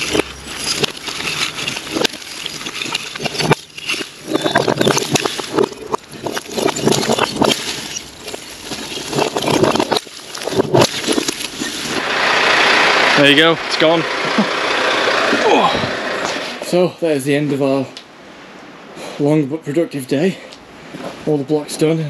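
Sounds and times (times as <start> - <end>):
bricks tumbling and clattering: 0.0 - 12.0.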